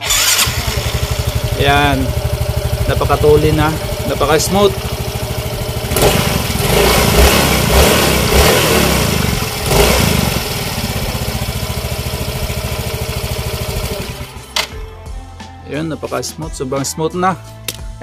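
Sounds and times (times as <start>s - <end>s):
scooter engine running: 0.0s - 14.4s.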